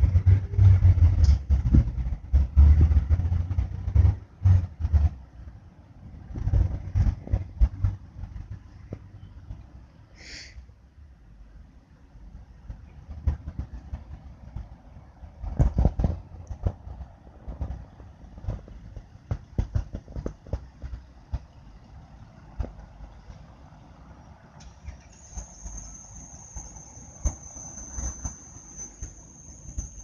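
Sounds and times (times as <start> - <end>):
knocks and clatter: 0.0 - 5.2, 15.4 - 21.6
rumble of crawling cars: 0.0 - 30.0
thin high whine: 24.9 - 30.0.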